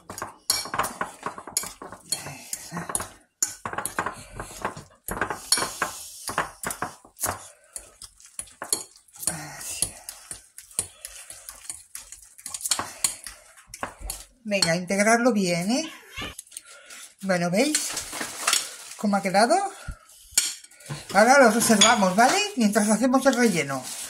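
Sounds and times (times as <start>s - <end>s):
metal utensil scraping ceramic bowl: 0.0s - 14.9s, 20.3s - 23.7s.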